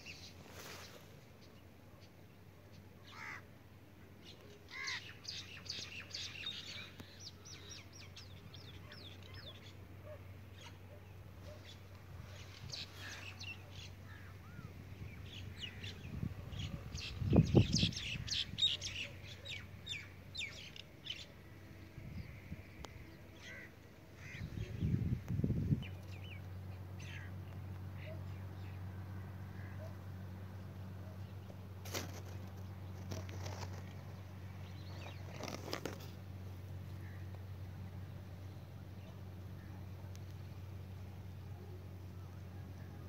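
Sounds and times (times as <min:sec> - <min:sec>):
small birds chirping: 0:04.2 - 0:21.5, 0:30.9 - 0:36.2.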